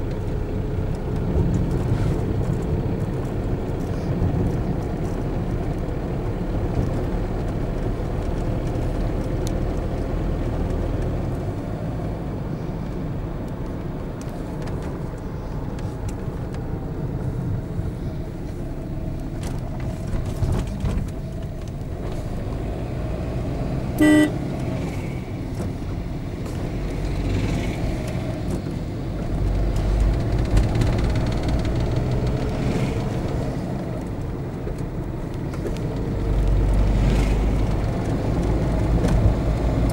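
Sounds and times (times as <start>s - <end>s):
car road rumble: 0.0s - 39.9s
vehicle horn toot: 24.0s - 24.4s.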